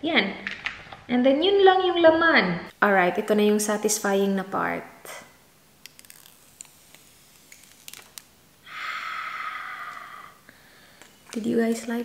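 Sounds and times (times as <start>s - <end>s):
plastic film peeling: 5.8s - 8.4s.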